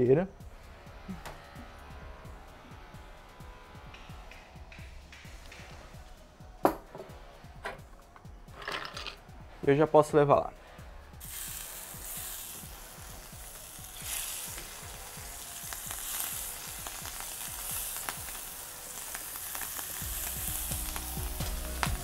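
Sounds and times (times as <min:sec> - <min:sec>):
oil spitting crackles: 0:11.2 - 0:22.0
shrimp sizzling in oil: 0:11.2 - 0:22.0.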